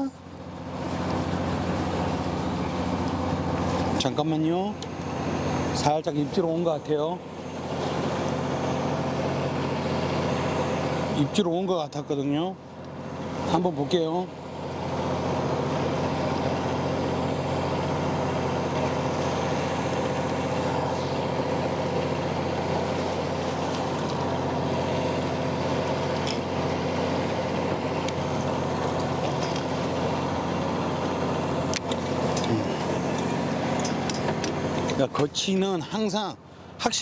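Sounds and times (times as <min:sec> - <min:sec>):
boat motor humming: 0:00.0 - 0:37.0.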